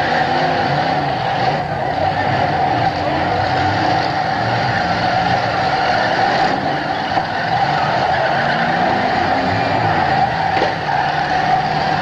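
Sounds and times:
car engines running loudly: 0.0 - 12.0.

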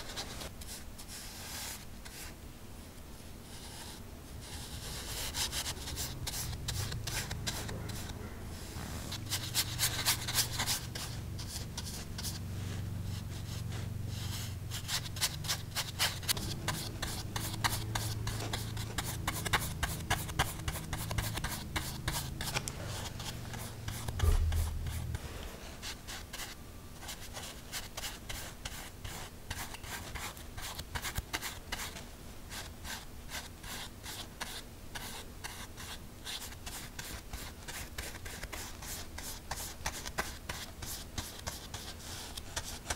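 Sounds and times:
paintbrush stroking on paper: 3.4 - 30.1
low hum: 4.3 - 14.8, 16.2 - 25.8
low thump: 24.1 - 25.2.

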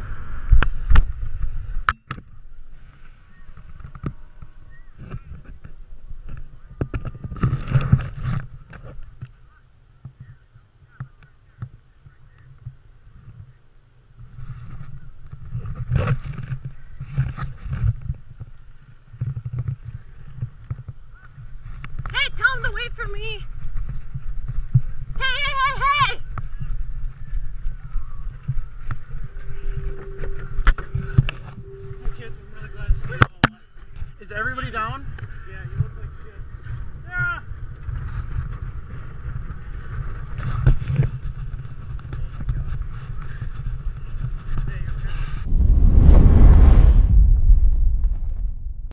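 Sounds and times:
wind buffeting microphone: 34.0 - 48.9.

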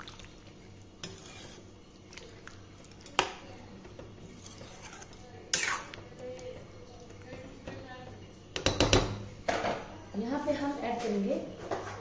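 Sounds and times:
metal spatula scraping a pan: 1.0 - 1.8, 4.3 - 6.0.

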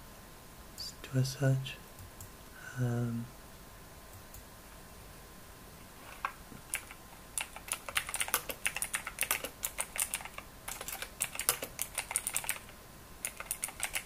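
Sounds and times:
keyboard typing: 6.7 - 14.0.

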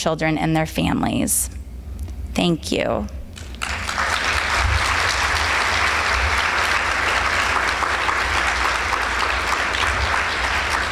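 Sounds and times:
audience applauding: 3.4 - 10.9.

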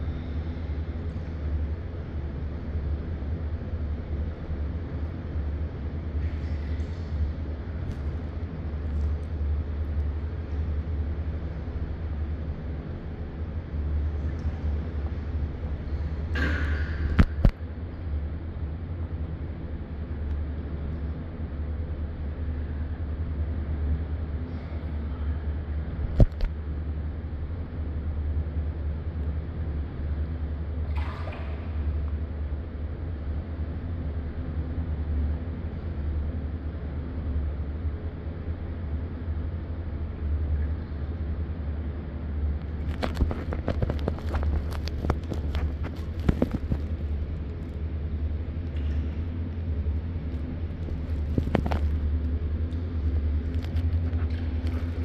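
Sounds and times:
gentle water movement: 0.0 - 21.2, 30.0 - 34.1, 38.8 - 55.0
indoor pool hall ambience: 0.0 - 55.0
low hum: 0.0 - 55.0
water swish: 30.9 - 32.6.

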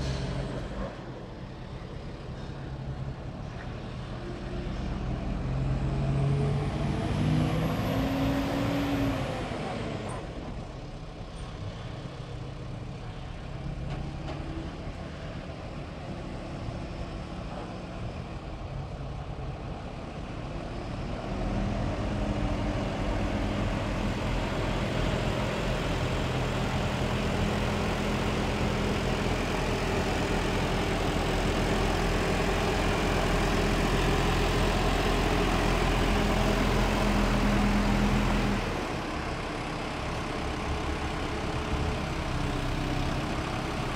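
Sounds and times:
diesel engine idling and revving: 0.0 - 43.9.

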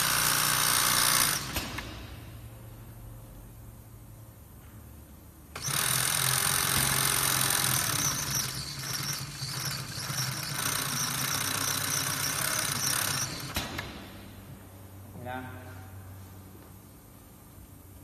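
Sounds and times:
sewing machine running: 0.0 - 1.6, 5.6 - 13.8.

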